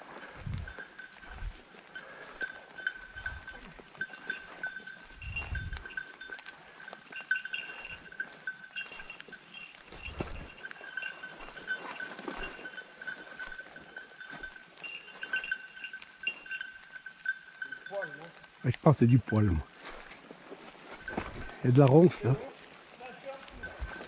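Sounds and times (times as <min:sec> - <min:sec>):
dry leaves crackling: 0:00.0 - 0:17.0, 0:19.7 - 0:24.0
dog bell jingling: 0:00.0 - 0:24.0.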